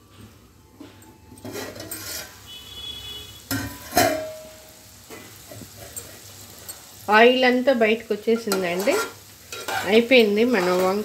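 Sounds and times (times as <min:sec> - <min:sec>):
curry sizzling in pot: 0:01.4 - 0:11.0
metal lid clanking: 0:03.5 - 0:04.5.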